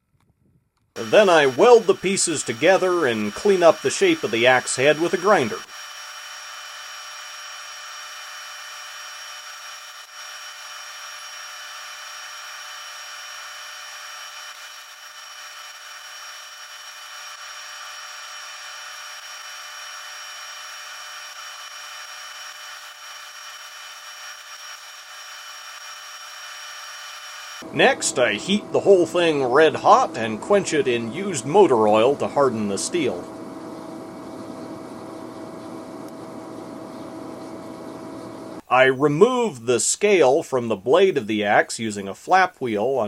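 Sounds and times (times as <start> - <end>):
steady hiss: 1.0 - 5.6, 27.6 - 40.2
high-pitched electrical whine: 1.0 - 39.6.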